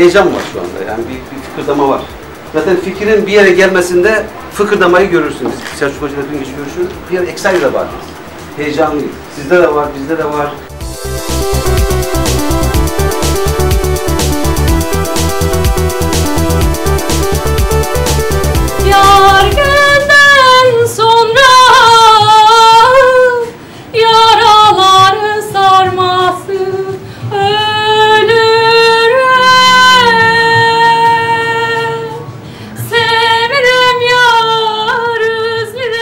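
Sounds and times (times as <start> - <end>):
woman singing slow melody: 18.7 - 36.0.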